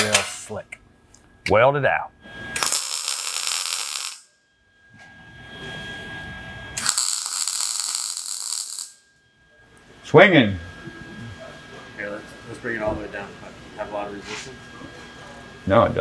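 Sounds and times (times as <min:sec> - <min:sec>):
low steady shop noise: 0:00.0 - 0:16.0
welder arc crackling: 0:02.5 - 0:04.3, 0:06.8 - 0:09.0.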